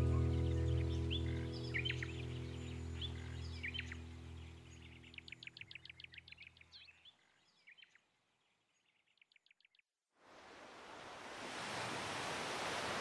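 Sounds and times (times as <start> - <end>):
faint birdsong chirping trills: 0.0 - 9.9.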